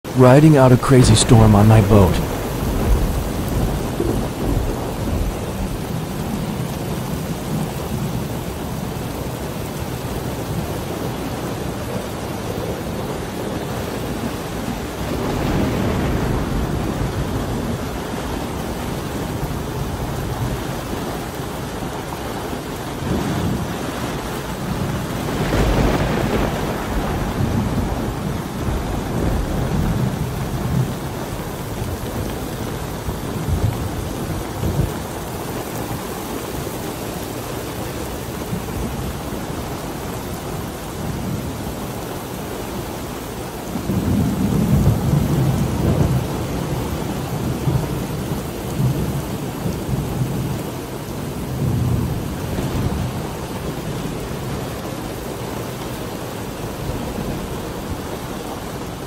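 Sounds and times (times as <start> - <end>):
rain falling: 0.0 - 59.0.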